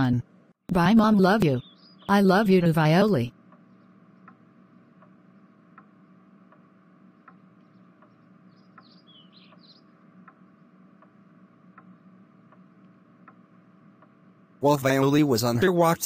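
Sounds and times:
high bird-like chirps: 1.5s - 2.2s, 8.5s - 9.9s
even ticking: 3.3s - 15.2s.

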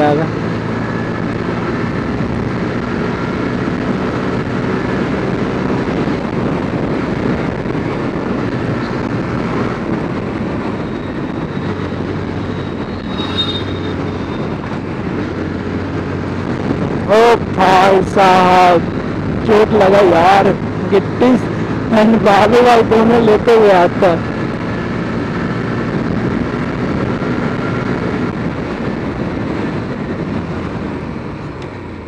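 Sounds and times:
truck passing: 0.0s - 17.5s
motorcycle engine and wind drone: 0.0s - 32.0s.

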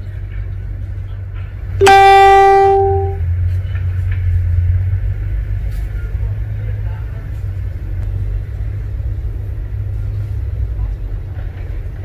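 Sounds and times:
loud horn blast: 1.8s - 3.2s.

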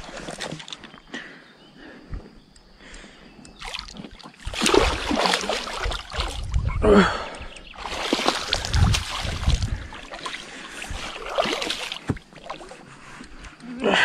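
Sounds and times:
fish splashing at water surface: 3.6s - 6.4s, 7.8s - 12.8s.

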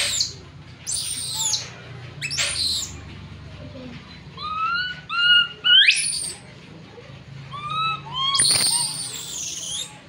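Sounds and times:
baby monkey crying and screaming: 0.0s - 3.0s, 4.4s - 6.4s, 7.5s - 10.0s.

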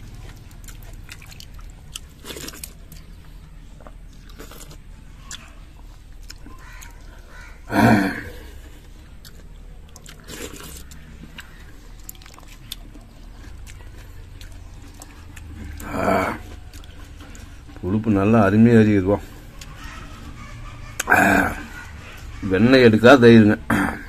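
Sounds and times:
faint chewing: 0.0s - 22.5s
person eating loud mouthfuls: 7.6s - 8.8s, 15.4s - 16.6s, 21.0s - 22.3s.

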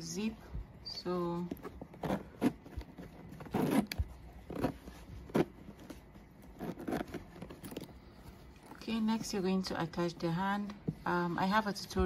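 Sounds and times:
zipper rasping: 1.4s - 8.8s.

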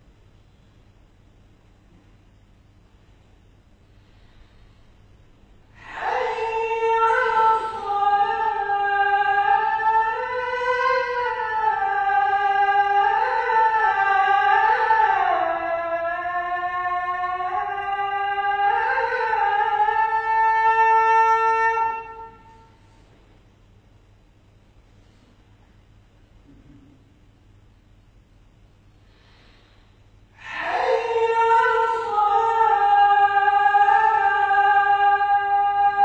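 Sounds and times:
man chanting call to prayer: 30.4s - 36.0s.

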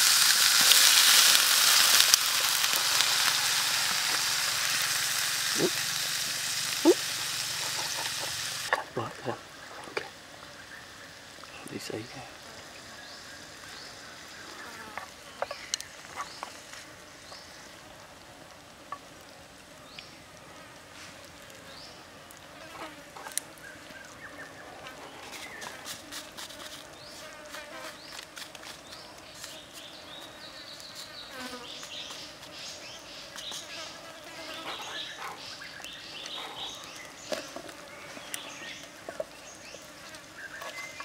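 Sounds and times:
food sizzling in a pan: 0.0s - 8.8s
pops and crackles: 0.0s - 9.0s
insects buzzing and chirping: 0.0s - 41.0s.

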